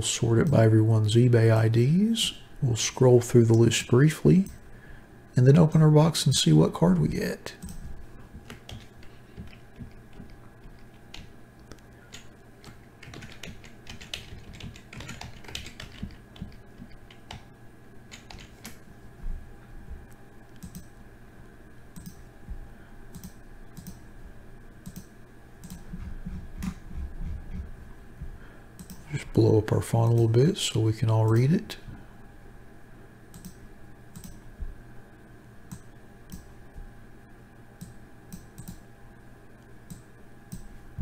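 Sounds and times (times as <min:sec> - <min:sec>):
faint steady hum: 0:00.0 - 0:41.0
keyboard and mouse clicking: 0:07.6 - 0:07.8, 0:08.4 - 0:17.5, 0:18.1 - 0:18.8, 0:20.6 - 0:20.9, 0:22.0 - 0:22.2, 0:23.1 - 0:24.0, 0:24.8 - 0:25.9, 0:28.8 - 0:29.0, 0:33.3 - 0:34.4, 0:35.7 - 0:36.5, 0:37.8 - 0:38.8.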